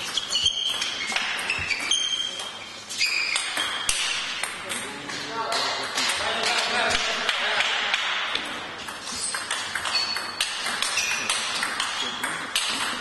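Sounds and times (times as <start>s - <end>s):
high squeaks: 0.0s - 4.0s, 9.0s - 12.7s.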